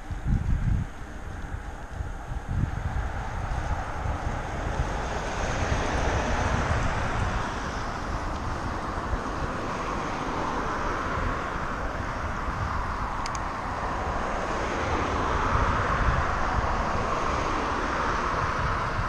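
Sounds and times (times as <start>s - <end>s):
cars passing: 0.0s - 19.0s
wind on microphone: 0.0s - 19.0s.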